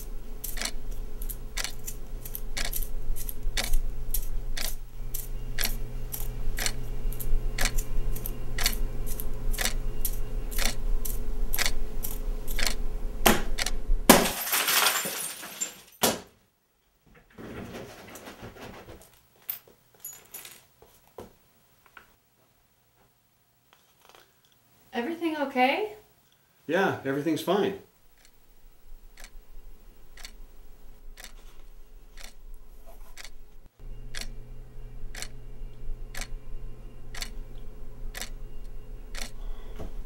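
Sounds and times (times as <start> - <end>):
low hum: 0.0 - 14.3, 28.0 - 40.0
glass shattering: 14.1 - 16.2
rustling: 17.1 - 22.5, 28.0 - 33.7
clock ticking: 29.1 - 29.4, 30.1 - 30.4, 37.1 - 37.3
small clicks: 35.1 - 35.3, 36.1 - 36.3, 37.1 - 37.4, 38.1 - 38.4, 39.1 - 39.4.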